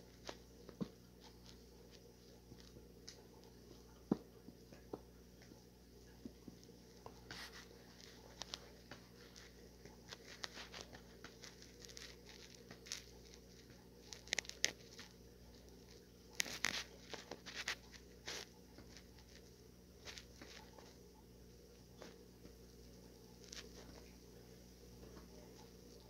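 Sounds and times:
packaging crinkling and tearing: 7.3s - 20.9s.

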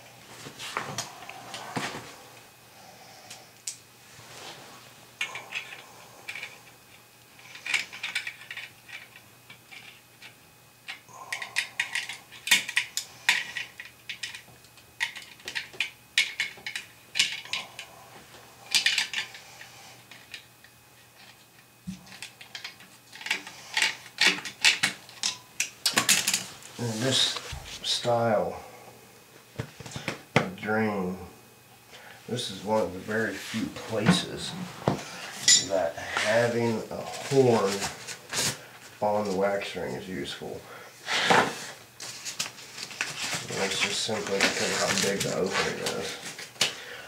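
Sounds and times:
hand tools clicking and clinking: 10.9s - 17.9s, 18.7s - 19.4s, 22.1s - 26.4s.

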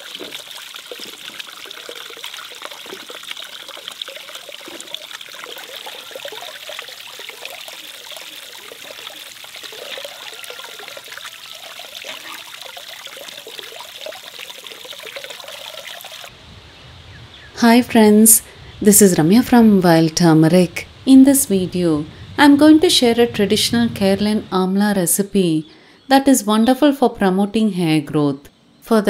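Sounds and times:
water pouring into basin: 0.0s - 16.3s.

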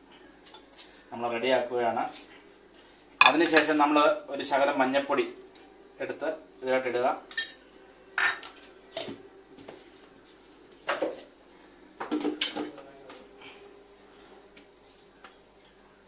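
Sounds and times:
metal jar knocks and clinks: 3.2s - 3.6s.

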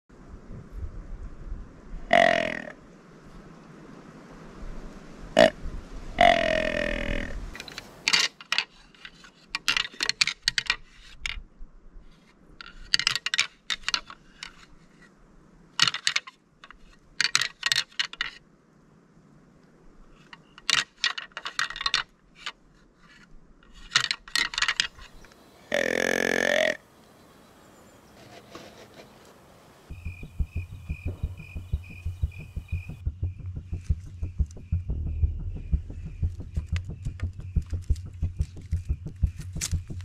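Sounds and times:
deer grunt call: 2.1s - 2.8s, 6.2s - 7.4s, 25.6s - 26.8s.

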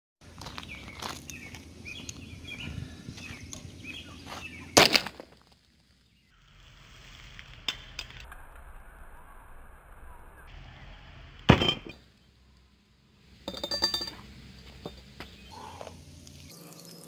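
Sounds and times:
birds chirping: 0.2s - 5.1s, 5.8s - 6.6s, 13.6s - 17.0s.

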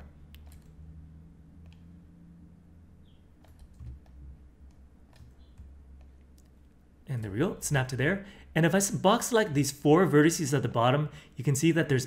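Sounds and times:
low steady hum: 0.0s - 12.0s
mouse and keyboard clicks: 0.2s - 0.8s, 1.6s - 2.0s, 3.3s - 6.7s.

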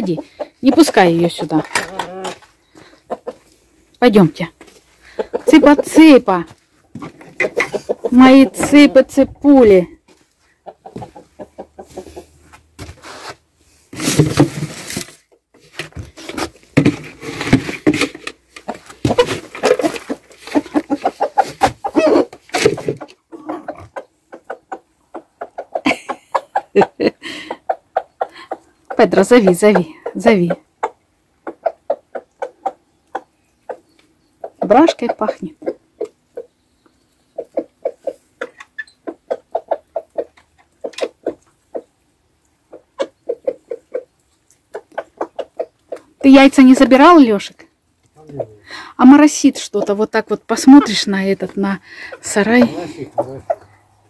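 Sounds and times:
hens clucking: 0.0s - 12.7s, 16.8s - 54.0s
knocks and shuffling: 0.0s - 24.6s, 49.1s - 53.8s.

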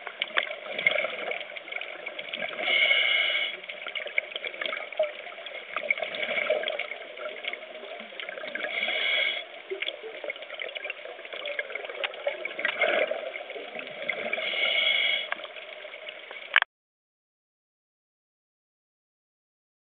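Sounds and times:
bubbles underwater: 0.0s - 2.8s, 3.8s - 9.0s, 9.6s - 14.5s
steady crackle: 0.0s - 16.7s
underwater regulator breathing: 2.5s - 3.8s, 8.6s - 9.6s, 14.2s - 15.5s.

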